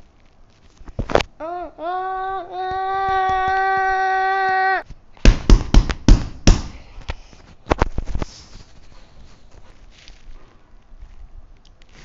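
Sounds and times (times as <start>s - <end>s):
person making vocal sound effect: 1.4s - 4.8s.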